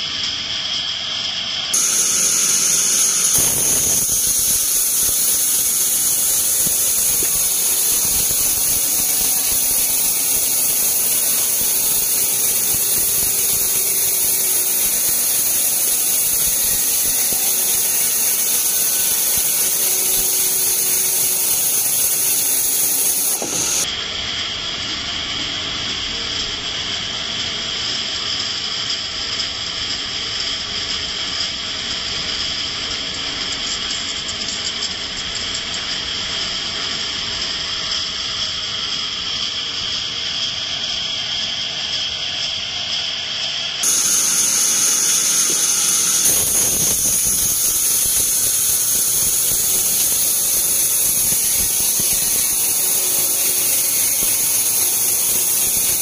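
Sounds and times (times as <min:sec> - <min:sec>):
band saw squealing whine: 0:01.8 - 0:23.9, 0:43.6 - 0:56.0.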